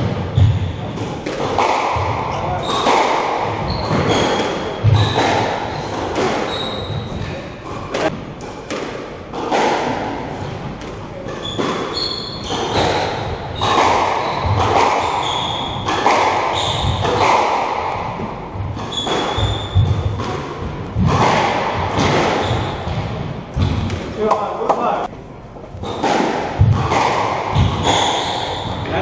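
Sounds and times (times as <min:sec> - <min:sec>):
squash ball hitting racquets and walls: 0:00.0 - 0:29.0
shoes squeaking on wooden floor: 0:03.6 - 0:07.8, 0:11.4 - 0:15.9, 0:18.8 - 0:20.1.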